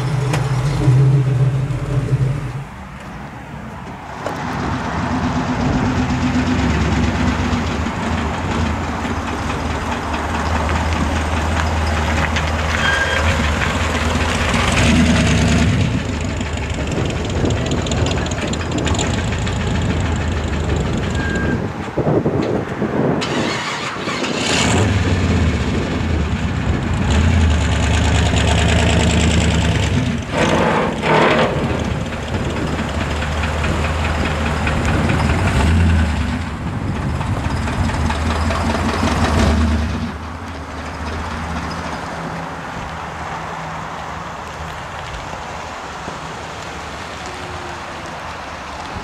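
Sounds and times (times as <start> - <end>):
pickup truck engine revving: 0.0 - 2.8, 4.4 - 21.4, 23.2 - 36.6.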